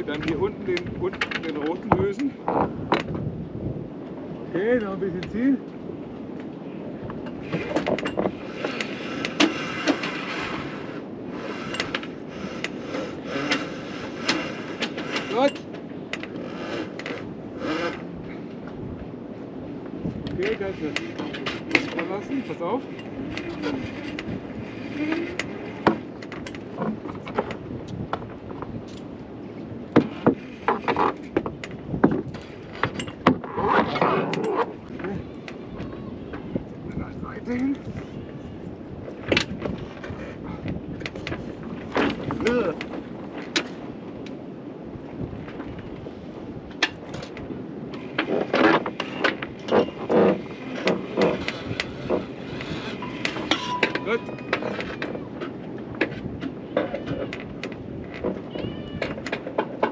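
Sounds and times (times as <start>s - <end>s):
sailboat rigging clinking: 0.0s - 3.2s, 4.6s - 38.2s, 38.9s - 59.9s
rigging clicks and knocks: 7.2s - 10.2s, 25.4s - 29.1s, 29.9s - 35.1s, 46.8s - 59.9s
rope rasping scrape: 7.4s - 15.5s, 16.3s - 18.1s, 20.5s - 26.2s, 48.2s - 54.8s.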